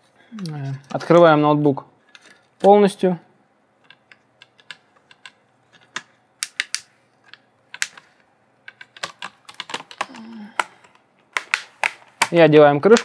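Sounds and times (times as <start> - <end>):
plastic clips snapping: 3.8 - 8.1, 8.7 - 13.0.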